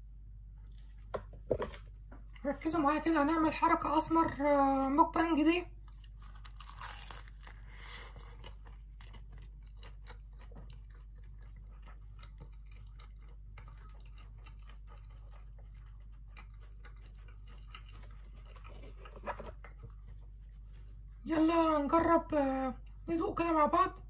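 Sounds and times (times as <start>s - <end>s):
faint low hum: 0.0s - 24.0s
crunchy chewing: 5.8s - 21.2s.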